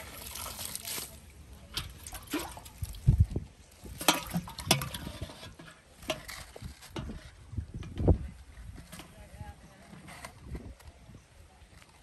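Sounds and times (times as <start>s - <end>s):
cooking pot knocks and scrapes: 3.9s - 9.2s.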